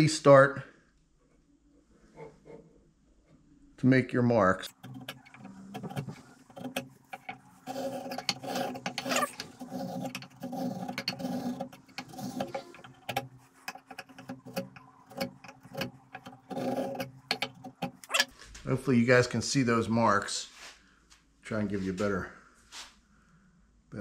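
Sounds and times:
marking gauge scraping wood: 4.7s - 18.3s
small clicks and knocks: 4.7s - 18.3s.

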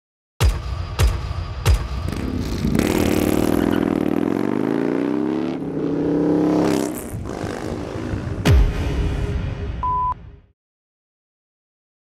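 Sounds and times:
motorcycle engine revving: 2.0s - 8.5s
deep impact hits: 8.3s - 9.8s.

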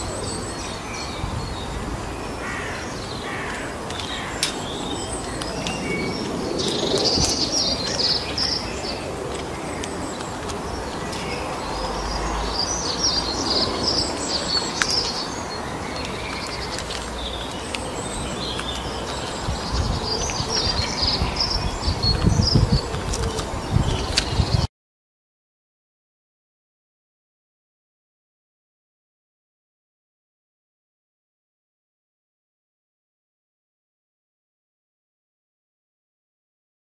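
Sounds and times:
birds chirping: 0.0s - 24.7s.

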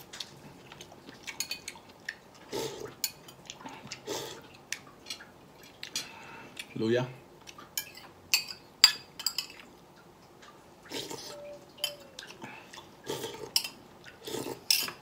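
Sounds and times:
eating and slurping: 0.0s - 6.8s, 10.4s - 15.0s
metal spoon clinking on bowl: 11.8s - 12.1s.

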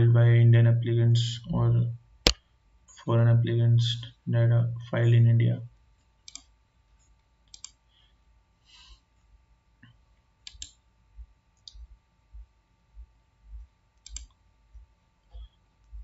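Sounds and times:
computer mouse clicks: 6.3s - 6.5s, 7.1s - 7.8s, 10.4s - 10.8s, 14.0s - 14.4s.

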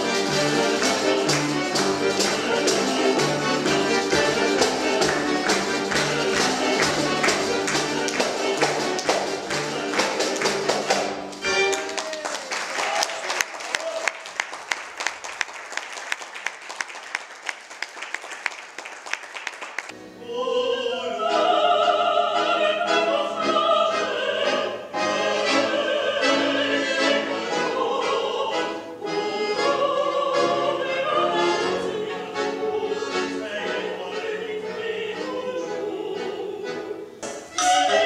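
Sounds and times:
sharp percussive beats: 0.0s - 11.4s
operatic singing: 0.0s - 11.7s, 20.2s - 38.0s
accordion: 0.0s - 12.0s, 19.9s - 38.0s.

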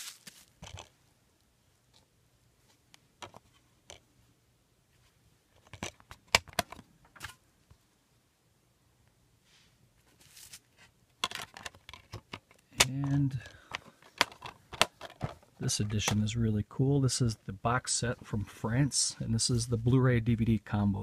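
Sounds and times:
soft rustle: 0.0s - 3.8s, 9.4s - 11.0s
plastic case clicks and knocks: 5.6s - 6.8s, 11.2s - 16.2s.

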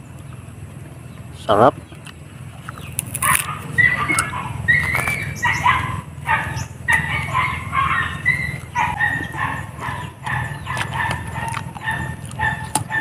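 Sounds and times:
steady low hum: 0.0s - 13.0s
dog yelping and barking: 3.2s - 13.0s.

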